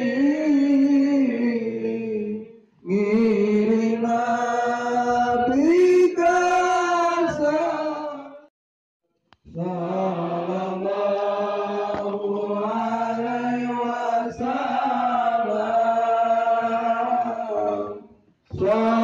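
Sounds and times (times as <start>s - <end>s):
melodic chanting: 9.5s - 19.0s.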